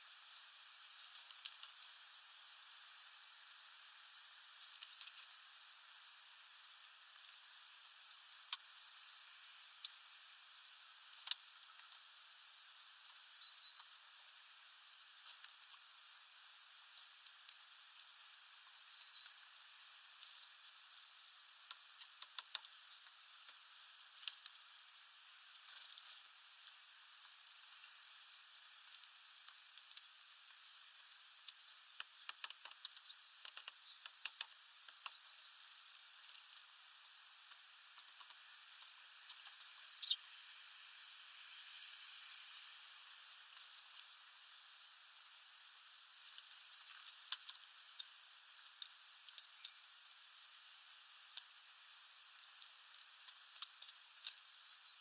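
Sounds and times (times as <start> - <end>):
bird beaks tapping seeds: 31.4 - 36.7, 37.4 - 40.2.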